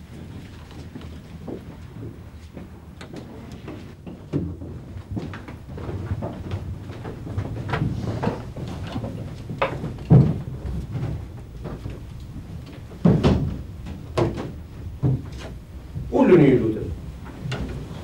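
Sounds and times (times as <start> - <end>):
knocks: 13.0 - 15.5.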